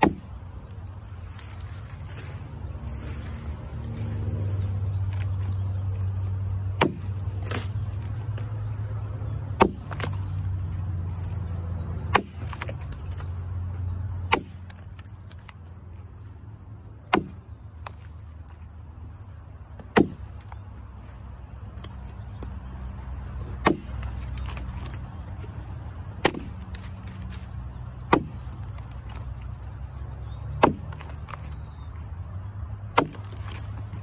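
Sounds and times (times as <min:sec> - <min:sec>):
axe chopping log: 0:00.0 - 0:00.4, 0:05.9 - 0:08.5, 0:09.4 - 0:10.8, 0:11.8 - 0:13.4, 0:14.2 - 0:15.6, 0:17.0 - 0:18.6, 0:19.7 - 0:20.6, 0:23.4 - 0:25.5, 0:26.2 - 0:29.6, 0:30.5 - 0:31.7, 0:32.9 - 0:34.0.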